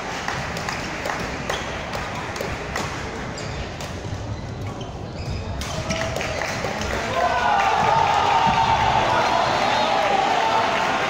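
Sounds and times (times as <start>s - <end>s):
rackets striking shuttlecocks: 0.5s - 6.8s.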